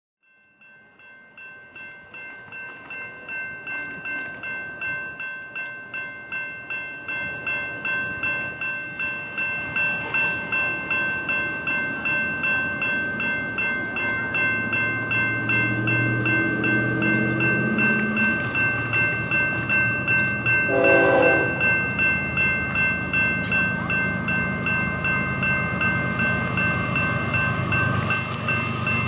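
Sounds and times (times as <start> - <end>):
railroad crossing bell ringing: 0.2 - 29.0.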